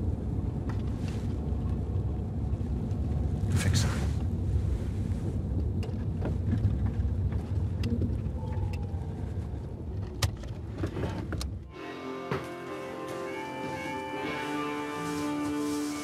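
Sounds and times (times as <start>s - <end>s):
car running rumble inside cabin: 0.0s - 11.7s
music: 11.7s - 16.0s.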